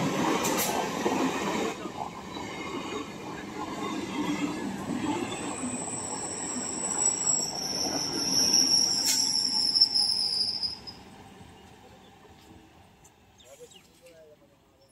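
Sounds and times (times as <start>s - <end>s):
train wheels rumbling on rail: 0.0s - 13.9s
high wheel squeal: 5.3s - 11.0s.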